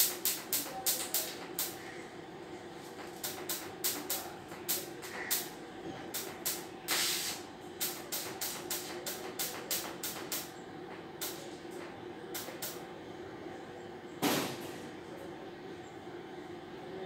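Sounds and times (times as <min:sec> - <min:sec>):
welding arc hissing: 0:00.0 - 0:01.9, 0:02.9 - 0:10.6, 0:11.2 - 0:11.5, 0:12.4 - 0:12.8
steady hum: 0:00.0 - 0:17.0.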